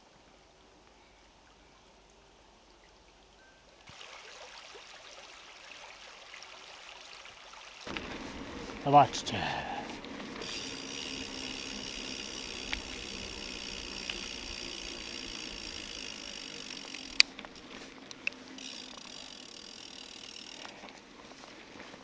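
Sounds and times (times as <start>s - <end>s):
tyre noise on asphalt: 7.9s - 19.3s
bicycle freehub ticking buzz: 10.4s - 20.9s.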